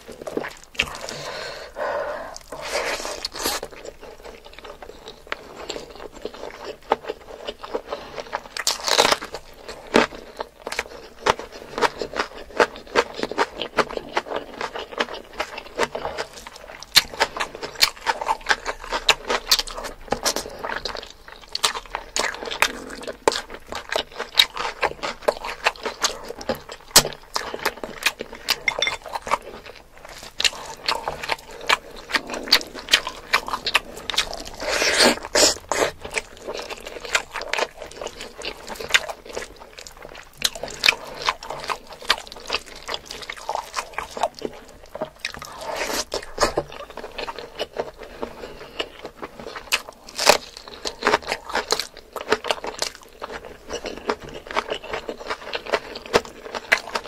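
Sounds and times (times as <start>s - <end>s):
close chewing and biting: 0.0s - 57.0s.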